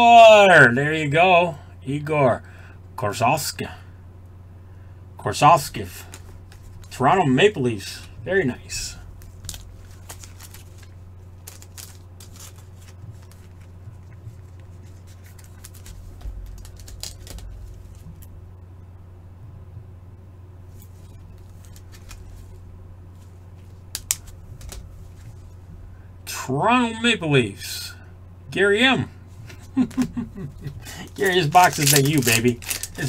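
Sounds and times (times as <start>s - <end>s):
steady low hum: 0.0s - 33.0s
trading cards clicking and rustling: 6.0s - 7.1s, 8.7s - 18.3s, 20.7s - 22.6s, 23.2s - 25.6s, 29.5s - 33.0s.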